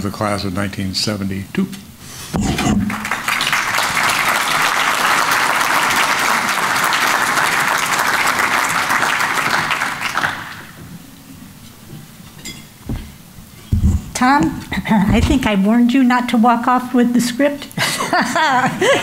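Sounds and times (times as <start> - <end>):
audience applauding: 2.8 - 10.9.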